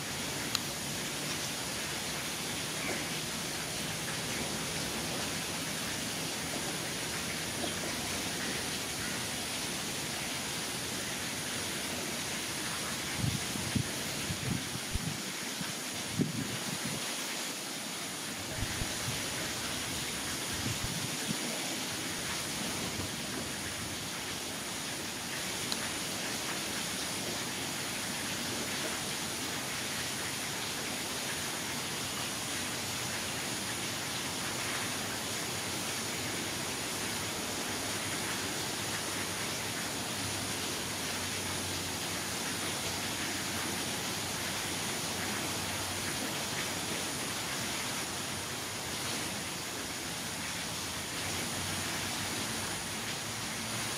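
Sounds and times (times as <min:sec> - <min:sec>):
steady background hiss: 0:00.0 - 0:53.9.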